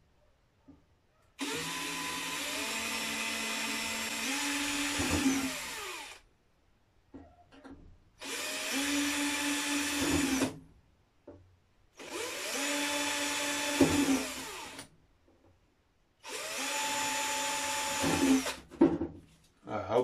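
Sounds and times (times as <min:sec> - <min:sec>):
cordless drill boring plastic: 0:01.4 - 0:06.2, 0:08.2 - 0:10.6, 0:12.0 - 0:14.9, 0:16.2 - 0:18.6.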